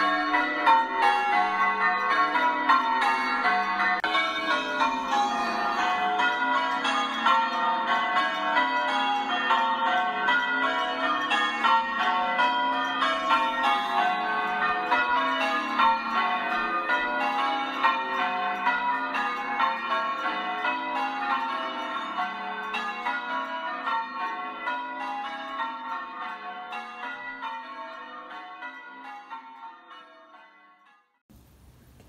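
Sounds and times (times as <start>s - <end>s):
church bells ringing: 0.0s - 31.2s.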